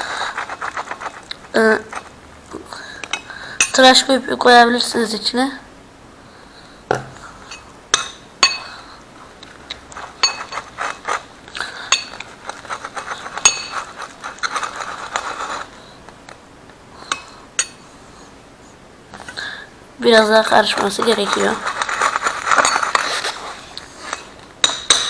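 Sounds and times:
spoon scraping plate: 0.0s - 2.2s, 9.4s - 16.0s, 20.6s - 25.0s
metal spoon clinking on plate: 7.5s - 8.7s, 9.7s - 10.9s, 11.9s - 12.3s, 13.4s - 13.9s, 17.1s - 17.8s, 24.6s - 25.0s.

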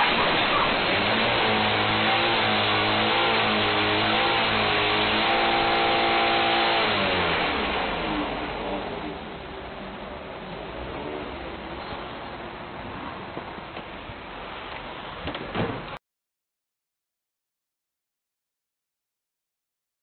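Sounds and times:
car engine revving high: 0.0s - 9.4s.

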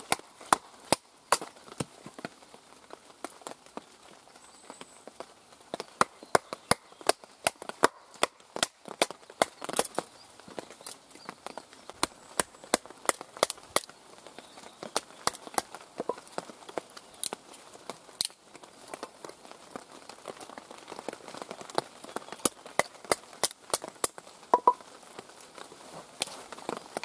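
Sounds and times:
wood cracking apart: 11.9s - 27.0s.

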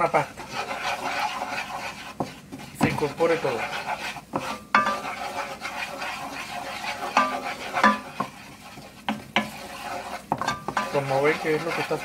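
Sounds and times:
wooden spoon scraping pot: 0.0s - 12.0s
spoon knocking against pot: 4.7s - 5.0s, 7.2s - 8.3s, 10.3s - 11.0s.

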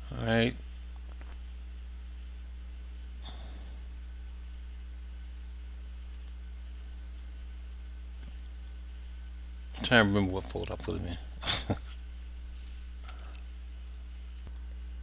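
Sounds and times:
low electrical hum: 0.0s - 15.0s
person exhaling: 3.2s - 3.9s.

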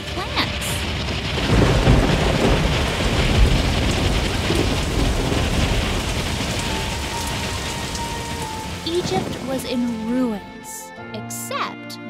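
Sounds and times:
low thunder rumbling: 0.0s - 10.8s
hail pelting: 0.0s - 10.9s.

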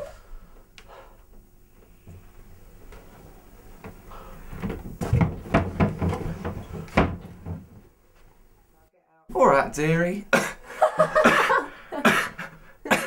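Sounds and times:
wooden wardrobe door knocking: 4.6s - 7.8s.

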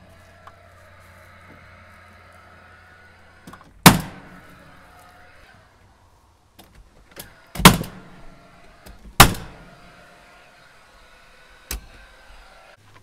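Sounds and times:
hammer striking nails into wood: 3.8s - 4.2s, 9.2s - 9.6s.

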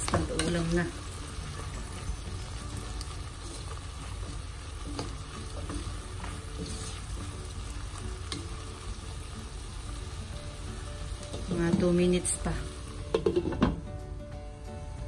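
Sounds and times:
vegetables sizzling in a wok: 0.0s - 14.2s
spatula scraping a pan: 4.9s - 7.2s.

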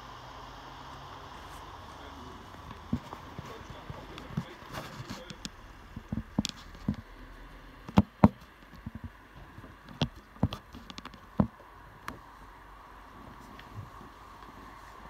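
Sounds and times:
faint steady background: 0.0s - 15.0s
sharp knocks and taps: 5.1s - 7.1s, 7.9s - 12.2s.

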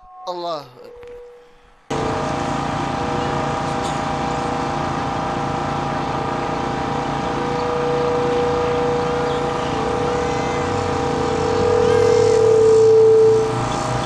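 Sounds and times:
clear hum: 0.8s - 14.0s
motor drone: 1.9s - 14.0s.

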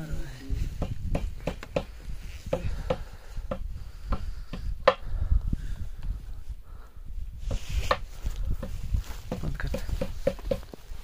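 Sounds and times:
footsteps crunching in snow: 7.5s - 9.6s.

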